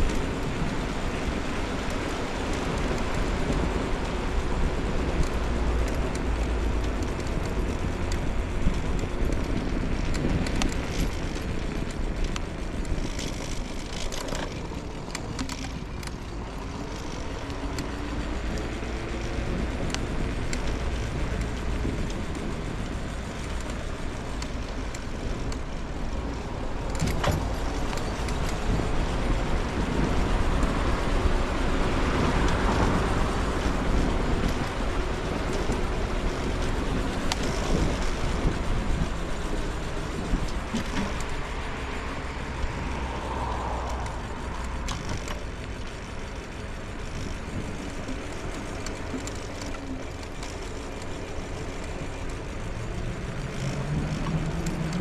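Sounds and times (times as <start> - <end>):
wheels rumbling on pavement: 0.0 - 55.0
wind: 0.0 - 55.0
car traffic passing: 15.8 - 55.0.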